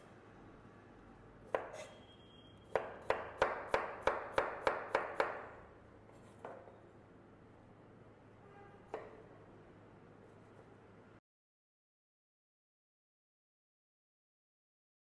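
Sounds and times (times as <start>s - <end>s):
knife chopping carrot on cutting board: 1.5s - 1.9s, 2.7s - 5.5s.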